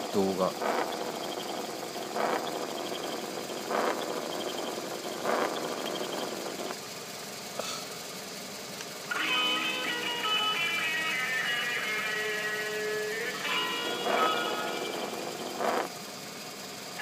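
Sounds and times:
fast even chirping: 0.6s - 6.6s
music: 9.1s - 15.7s.

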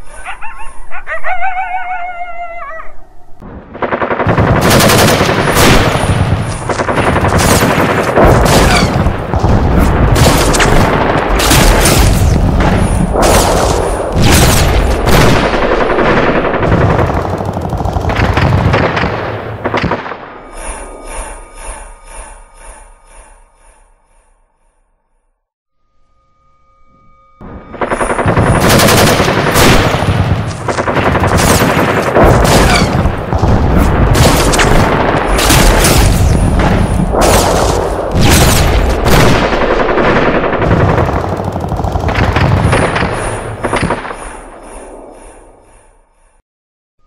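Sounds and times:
faint evenly spaced pulses: 19.4s - 29.4s
automatic gunfire: 28.0s - 33.0s.

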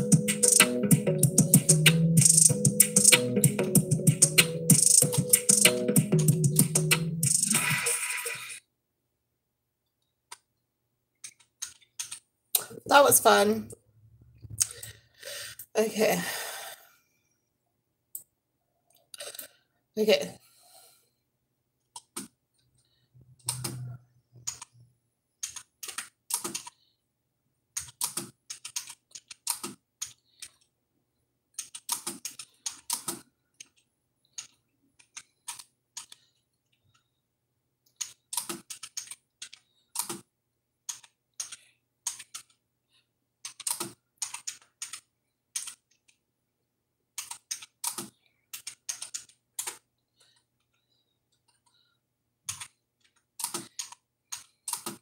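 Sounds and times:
computer keyboard typing: 0.0s - 8.1s, 11.2s - 12.2s, 25.4s - 26.8s, 27.8s - 30.7s, 31.6s - 36.2s, 37.9s - 40.3s, 40.9s - 42.6s, 43.4s - 46.1s, 47.2s - 49.8s, 52.5s - 55.0s.

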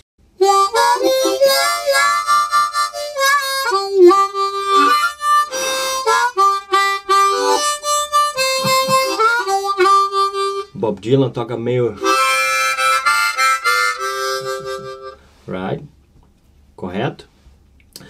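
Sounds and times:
blues harmonica playing: 0.4s - 10.8s, 12.0s - 15.3s.

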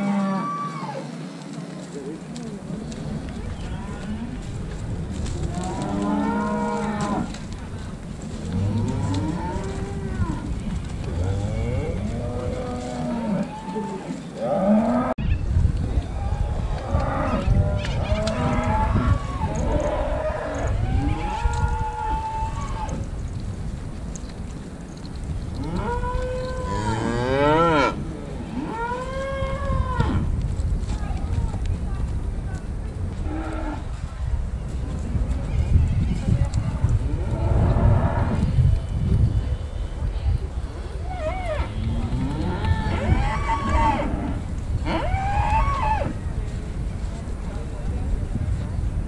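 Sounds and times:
cattle mooing: 5.4s - 7.3s.

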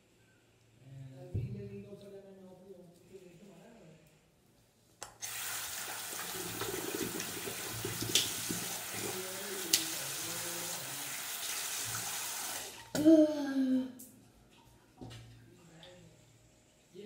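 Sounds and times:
tap water running into sink: 5.2s - 12.9s.

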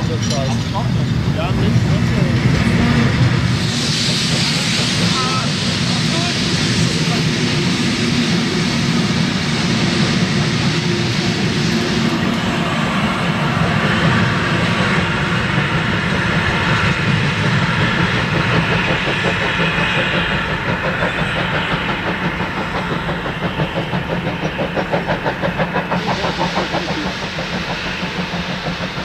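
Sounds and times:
quick regular train beat: 0.0s - 29.0s
steam train rumbling: 0.0s - 29.0s.

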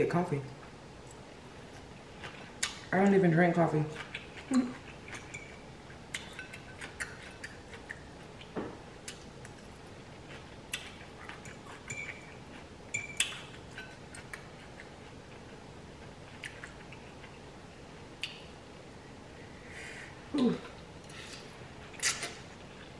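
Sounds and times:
soft chewing: 0.5s - 18.5s, 20.3s - 22.9s
metal fork clinking on glass bowl: 5.1s - 5.6s, 12.9s - 13.2s.

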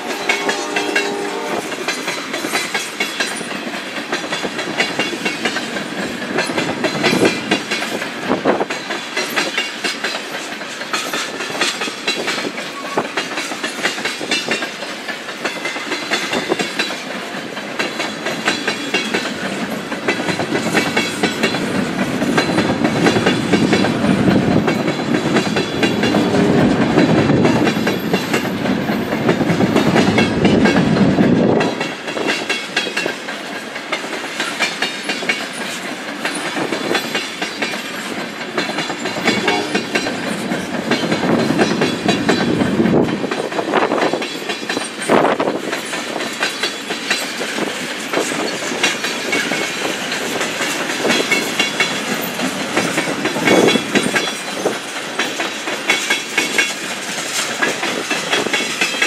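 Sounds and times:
low rumble of train: 0.0s - 59.0s
train wheels clicking over rail joints: 0.0s - 59.0s.

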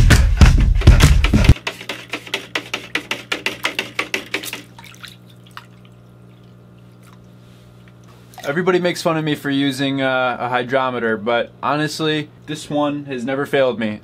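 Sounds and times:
drum beat: 0.0s - 4.8s
water sloshing in plastic bucket: 1.8s - 8.7s
faint steady hum: 4.8s - 14.0s.

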